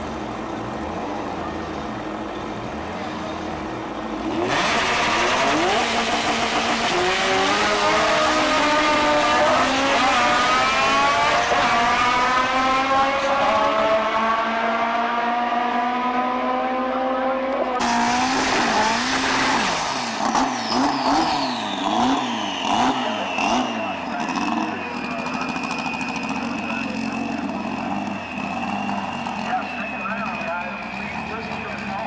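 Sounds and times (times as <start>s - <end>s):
drag cars accelerating: 0.0s - 32.0s
engine revving: 2.8s - 32.0s
tyre squeal: 19.7s - 31.9s.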